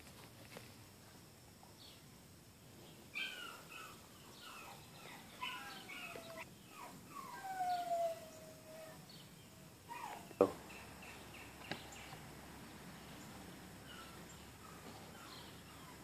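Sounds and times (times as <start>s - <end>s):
puppies whining: 3.1s - 9.1s, 9.9s - 11.2s, 13.8s - 16.0s.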